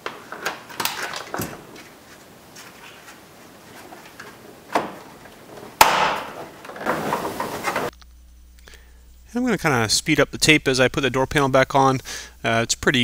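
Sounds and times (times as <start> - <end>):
trim scraping against door: 0.1 - 7.9
sharp knock: 5.8 - 6.4.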